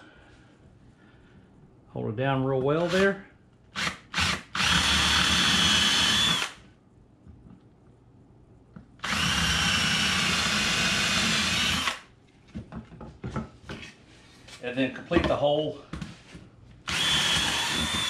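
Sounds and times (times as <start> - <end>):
cordless drill boring wood: 3.8 - 6.6, 9.0 - 12.1, 16.9 - 18.0.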